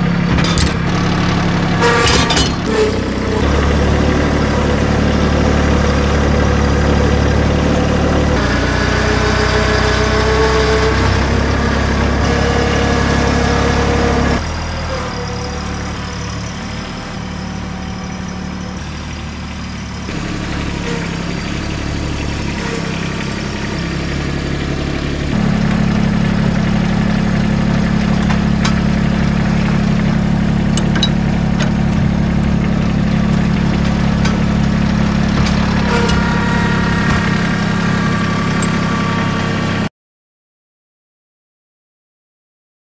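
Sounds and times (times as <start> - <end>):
engine idling: 0.0 - 39.9.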